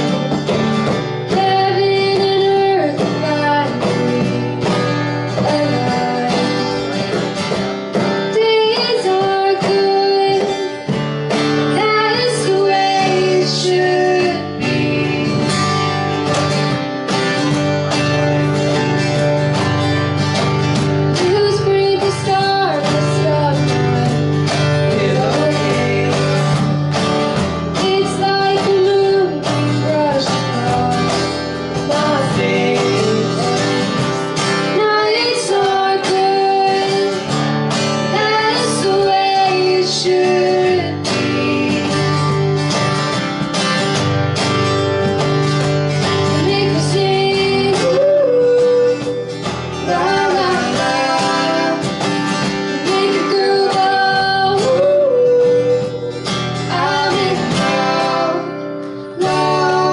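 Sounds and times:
woman singing: 0:00.0 - 0:16.5, 0:20.7 - 0:43.0, 0:46.1 - 0:59.9
acoustic guitars strumming: 0:00.0 - 0:59.9.

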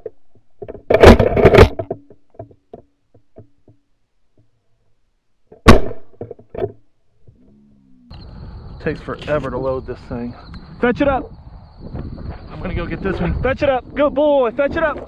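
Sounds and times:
shotgun shot: 0:05.6 - 0:06.2.

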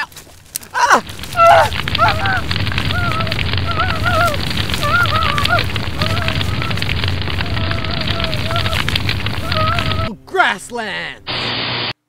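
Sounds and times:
dry grass burning crackle: 0:00.0 - 0:11.8
high wavering cries: 0:00.7 - 0:10.1.

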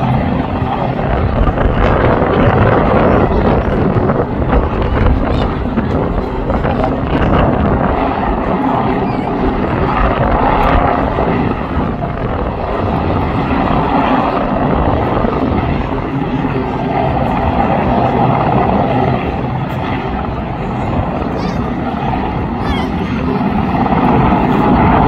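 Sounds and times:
helicopter hovering: 0:00.0 - 0:25.0.

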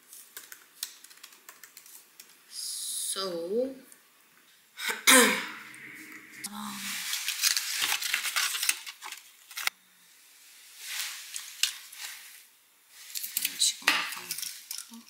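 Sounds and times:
plastic sachets crinkling: 0:00.0 - 0:02.4, 0:06.7 - 0:09.7, 0:11.0 - 0:12.4.

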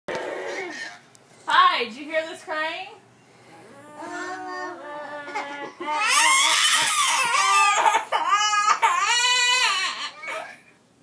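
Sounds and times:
girl crying and wailing: 0:03.8 - 0:10.5.

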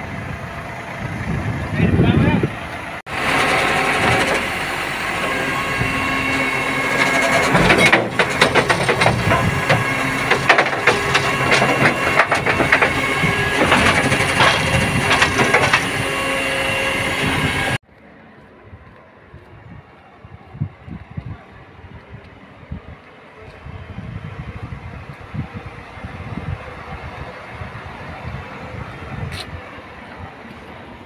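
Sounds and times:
truck engine and hydraulics whine: 0:00.0 - 0:31.0
bin clattering and rattling: 0:07.0 - 0:16.3.

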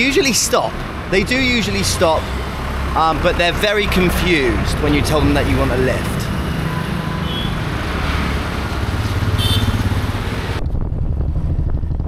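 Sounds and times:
road traffic passing: 0:00.0 - 0:11.6.

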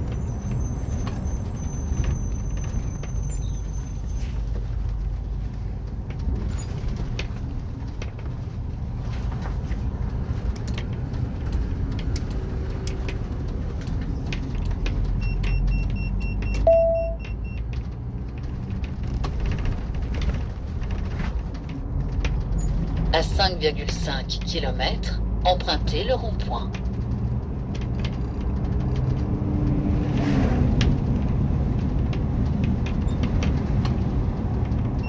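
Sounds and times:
engine and road rumble: 0:00.0 - 0:35.0
short beep: 0:15.2 - 0:17.6.

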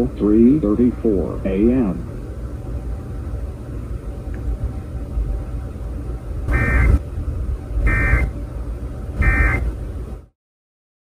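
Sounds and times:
steady low rumble: 0:00.0 - 0:10.3
buzzy digital data bursts: 0:06.5 - 0:07.0, 0:07.8 - 0:08.3, 0:09.2 - 0:09.6.

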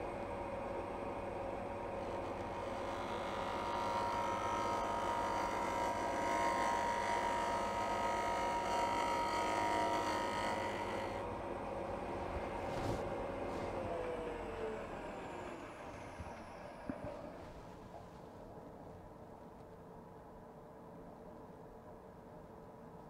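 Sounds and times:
lathe motor hum: 0:00.0 - 0:18.0.

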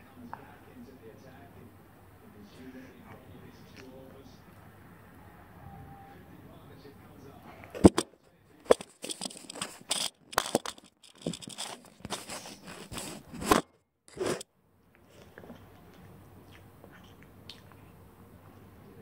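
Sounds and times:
hands rubbing and knocking on camera: 0:07.8 - 0:08.1, 0:08.7 - 0:14.4.

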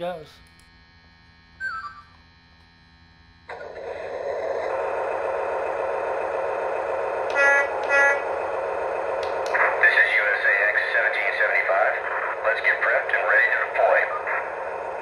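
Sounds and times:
toy diesel engine rumble: 0:03.5 - 0:15.0.

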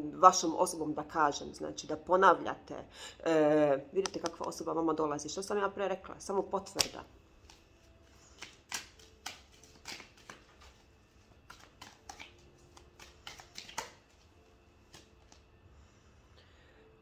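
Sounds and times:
cards tapping and flicking on a table: 0:06.8 - 0:07.6, 0:08.3 - 0:10.8, 0:11.4 - 0:14.2, 0:14.8 - 0:15.4.

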